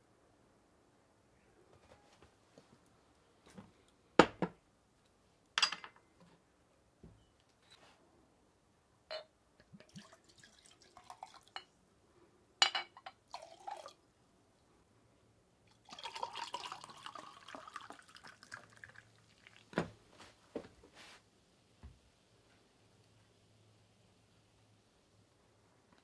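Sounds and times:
liquid pouring into glass: 9.7 - 11.7, 13.1 - 14.0, 15.7 - 19.7
glass clinks: 12.6 - 13.2.

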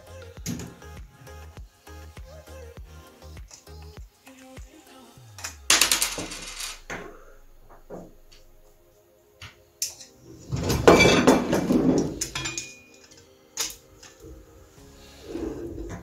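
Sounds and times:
metal parts clicking and knocking: 5.7 - 6.8.

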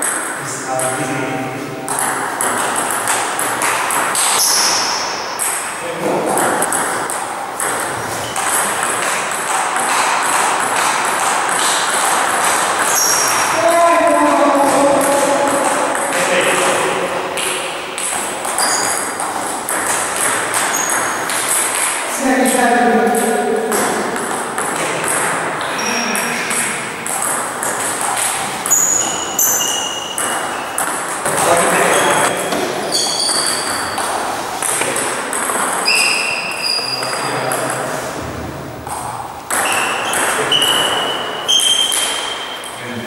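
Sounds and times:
sports hall background noise: 0.0 - 43.0
sharp ball hits ringing: 1.8 - 37.9, 38.8 - 42.8
table tennis balls clicking: 1.9 - 37.9, 38.8 - 42.8
table tennis ball clicking: 17.4 - 22.0.

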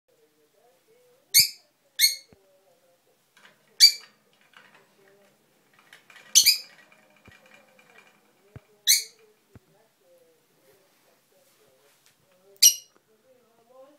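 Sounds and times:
parrot chattering: 1.3 - 2.3, 3.8 - 4.1, 8.8 - 9.2.

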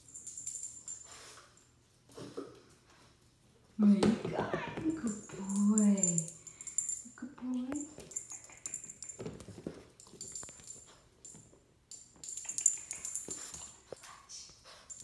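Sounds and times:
puppy claws clicking on tile: 5.0 - 7.1, 7.7 - 9.4, 10.0 - 15.0.

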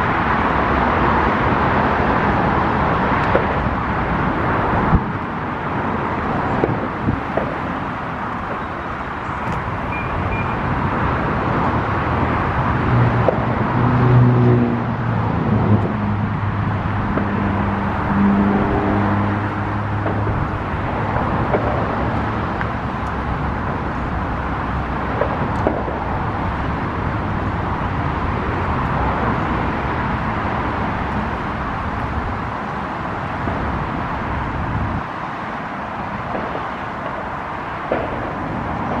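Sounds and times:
road traffic noise: 0.0 - 39.0.

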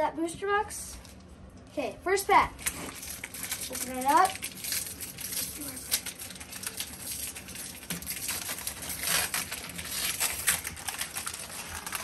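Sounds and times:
foil wrapper crinkling: 2.6 - 12.0.

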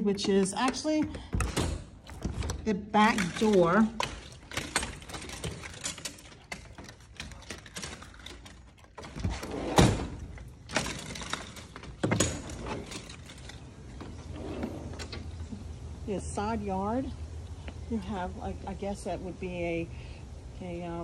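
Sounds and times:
door latch clicks and rattles: 0.2 - 13.8.

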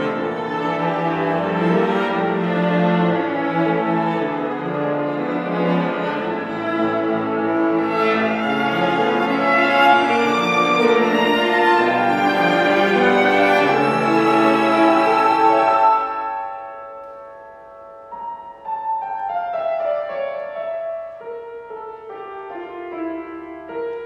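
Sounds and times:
violin: 0.0 - 17.7
cello: 0.0 - 24.0.

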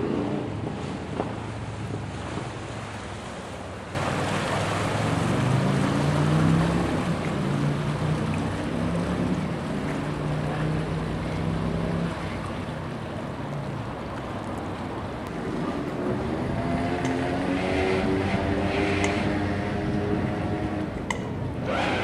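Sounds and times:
boat engines low hum: 0.0 - 22.0
boat engine idling: 3.9 - 16.2.

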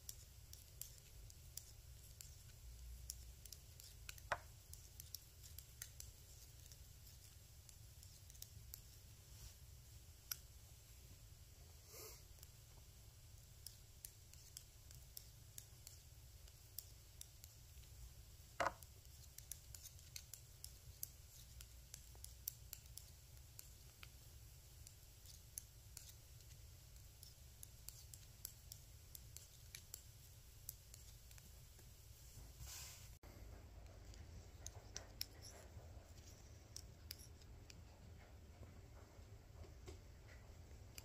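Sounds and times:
metal knitting needles clicking: 0.0 - 9.2, 10.1 - 10.6, 13.2 - 31.9, 33.5 - 38.8.

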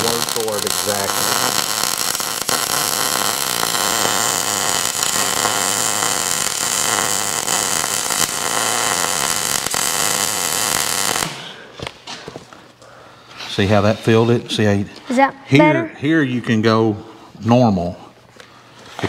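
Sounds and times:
welding arc crackling and hissing: 0.0 - 11.7.

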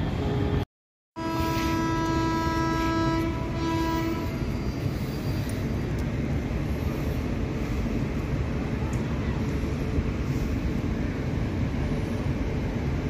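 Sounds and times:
approaching train rumble: 0.0 - 0.6, 1.2 - 13.0
locomotive horn: 1.2 - 4.5.

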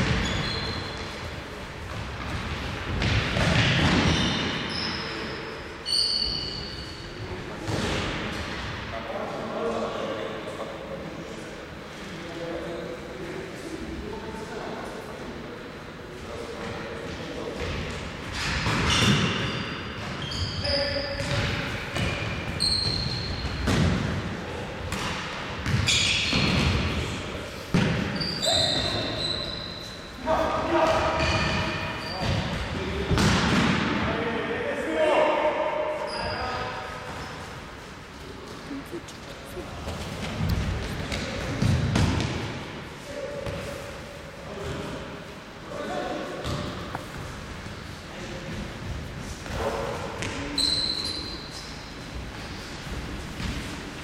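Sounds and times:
shoes squeaking on floor: 0.0 - 1.3, 4.0 - 7.2, 18.3 - 21.4, 22.0 - 23.7, 25.7 - 26.6, 28.1 - 30.2, 31.2 - 32.6, 36.0 - 36.7, 49.6 - 52.7.

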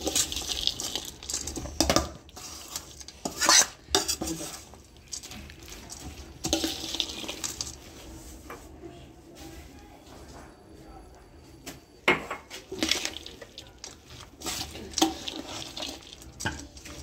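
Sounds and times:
spoon scraping a metal bowl: 0.0 - 5.3, 12.5 - 17.0.

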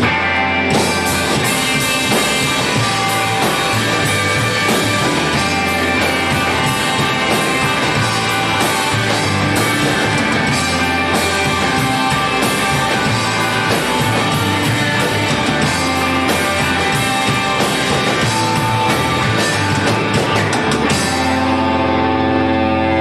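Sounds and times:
rock band playing live: 0.0 - 23.0
held guitar chord ringing: 20.9 - 23.0.

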